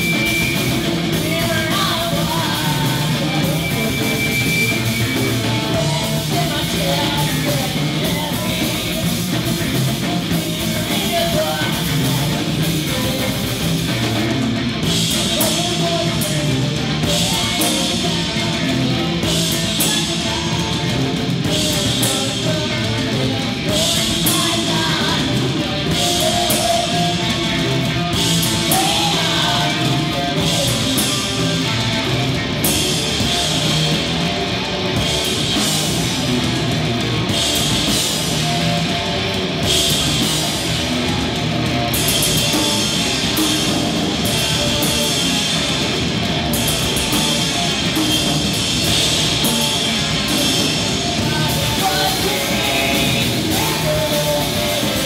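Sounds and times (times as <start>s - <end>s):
bass guitar: 0.0s - 55.0s
distorted guitar: 0.0s - 55.0s
drum kit: 0.0s - 55.0s
woman singing: 1.0s - 4.3s, 5.4s - 14.1s, 15.1s - 27.6s, 28.4s - 31.6s, 50.4s - 55.0s.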